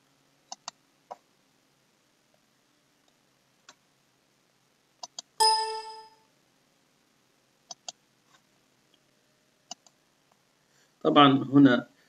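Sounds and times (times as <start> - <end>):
computer mouse clicks: 0.5 - 1.2, 5.0 - 5.3, 7.7 - 8.0, 9.7 - 10.0
alert chime: 5.4 - 6.2.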